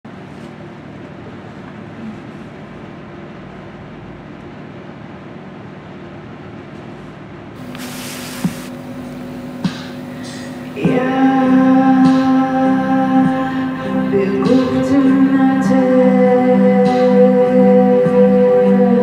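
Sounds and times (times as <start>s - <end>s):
low noisy drone with hum: 0.1s - 19.0s
hissing swell: 7.6s - 15.4s
held low note: 7.6s - 19.0s.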